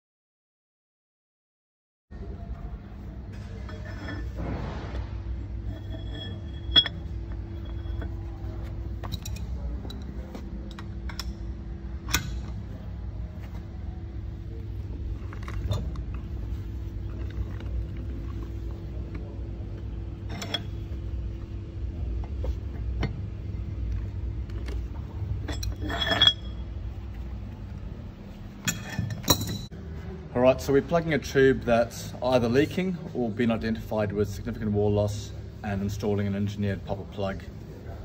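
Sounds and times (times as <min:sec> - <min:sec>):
low machine hum: 0:02.1 - 0:38.0
short ringing clink: 0:05.7 - 0:08.2.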